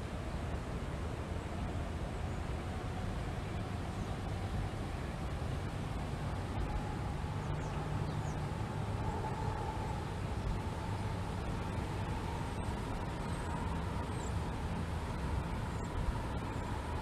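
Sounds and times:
faint steady hum: 0.0 - 17.0
wind blowing across microphone: 0.0 - 17.0.

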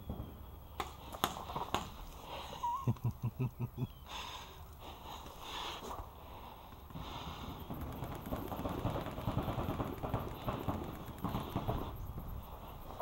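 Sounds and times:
breathing into a mask: 0.8 - 2.8, 3.9 - 13.0
sharp clicks: 6.6 - 11.9.

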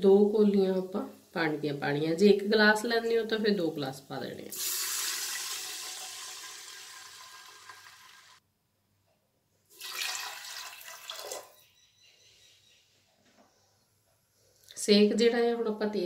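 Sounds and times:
water pouring into a pot: 4.5 - 8.4, 9.8 - 11.6.

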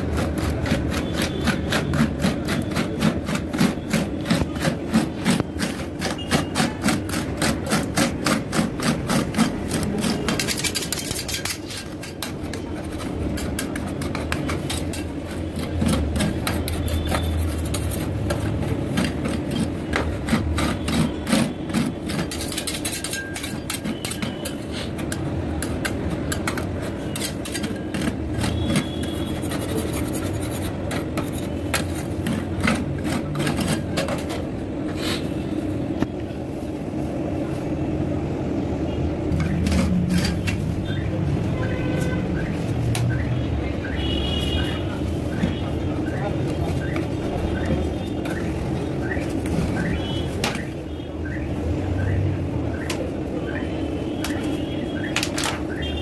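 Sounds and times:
metal spatula scraping metal plate: 0.0 - 35.4, 39.3 - 42.5.

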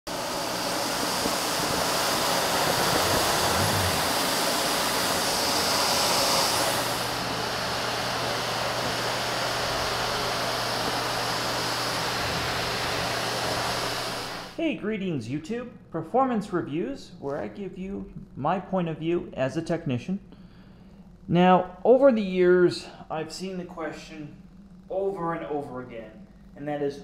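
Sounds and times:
vacuum cleaner running: 0.1 - 15.0.

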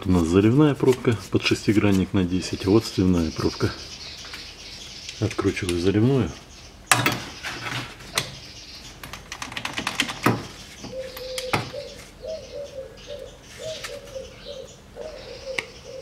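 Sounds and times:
sharp metal knocks: 6.9 - 8.3
pigeon cooing: 10.7 - 16.0.

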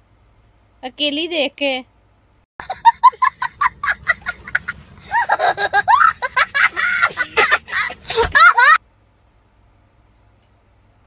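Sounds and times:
child laughing: 2.6 - 8.8.

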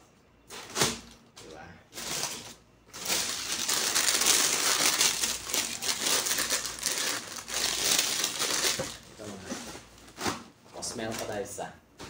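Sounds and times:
tissue paper crinkling: 2.0 - 9.4.

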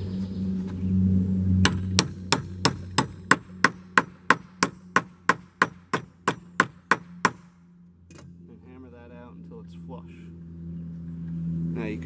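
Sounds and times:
low hum: 0.0 - 12.0
hammer tapping on wood: 1.6 - 7.5.

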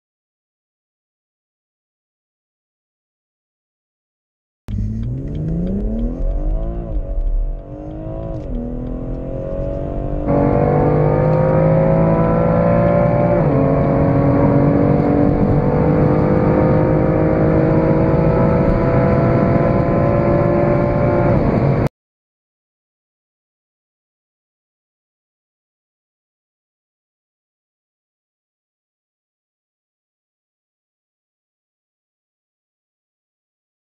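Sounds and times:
car engine accelerating hard: 4.7 - 21.9.

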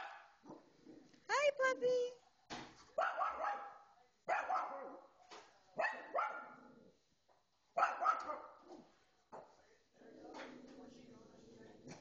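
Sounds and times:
small dog barking: 0.0 - 0.6, 3.0 - 5.0, 5.8 - 6.6, 7.8 - 8.8.

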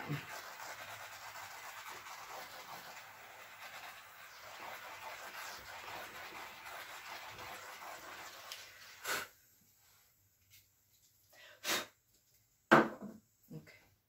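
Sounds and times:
hand tool rubbing on wood: 0.0 - 8.8
person sniffing: 9.0 - 9.4, 11.4 - 12.0.

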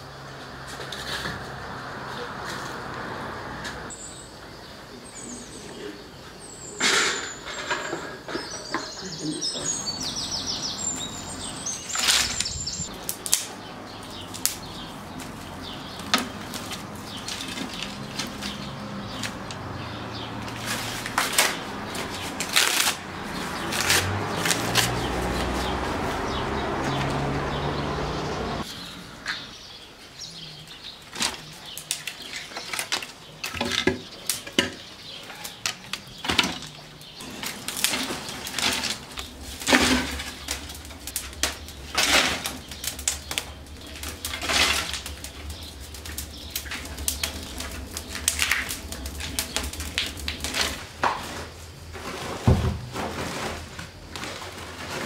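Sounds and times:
dense rustling of reeds: 8.9 - 28.9, 29.6 - 55.0
fire crackling and snapping: 9.7 - 28.2, 31.0 - 35.1, 35.7 - 52.1.

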